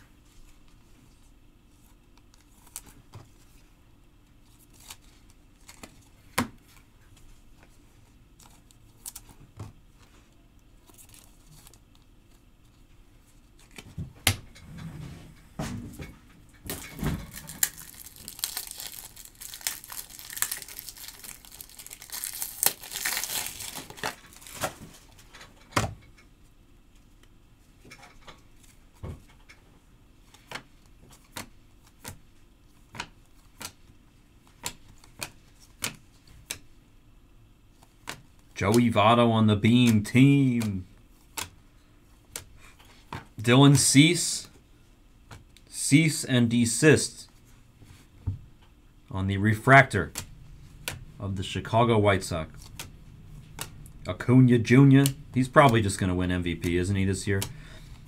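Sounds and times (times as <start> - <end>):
wrapper tearing and crinkling: 16.7 - 24.8
thumps of cards and packaging: 16.7 - 25.0.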